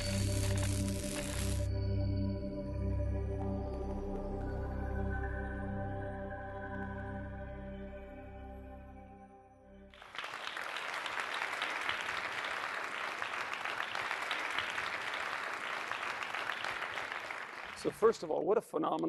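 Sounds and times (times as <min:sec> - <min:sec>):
audience applause: 0:10.0 - 0:18.5.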